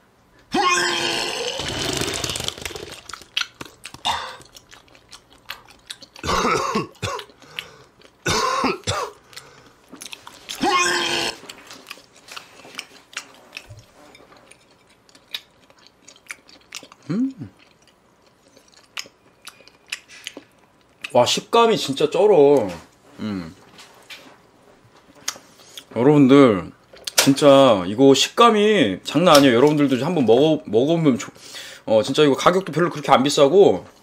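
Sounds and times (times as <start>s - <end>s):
man chewing: 0.4s - 21.2s
man clearing throat and coughing: 4.0s - 4.4s, 6.2s - 7.4s, 8.2s - 9.2s.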